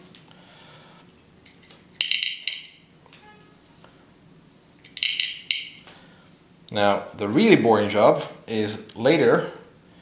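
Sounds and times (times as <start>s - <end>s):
steel balls clinking: 2.0s - 2.8s, 4.8s - 5.8s.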